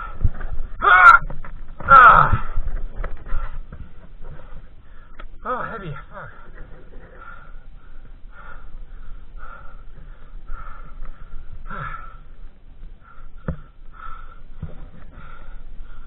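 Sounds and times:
man panting hard: 7.1 - 12.4, 13.0 - 16.0.

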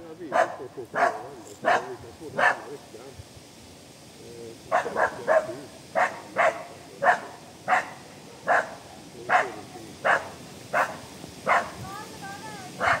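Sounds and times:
dog barking: 0.3 - 2.7, 4.7 - 11.8, 12.8 - 13.0.

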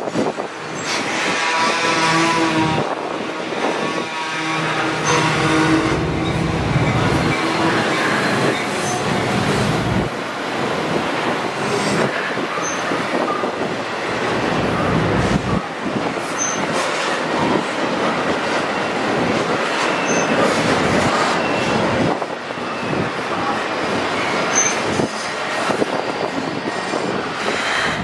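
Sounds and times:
steel wheels rolling on rail: 0.0 - 28.0
high wheel squeals: 3.7 - 9.2, 19.8 - 20.5.

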